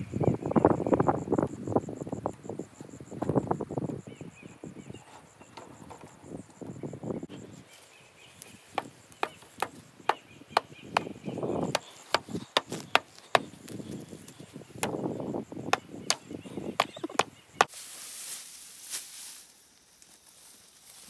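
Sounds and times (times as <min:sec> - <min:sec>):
wooden mallet knocking on poles: 0:08.8 - 0:13.6, 0:15.7 - 0:17.7.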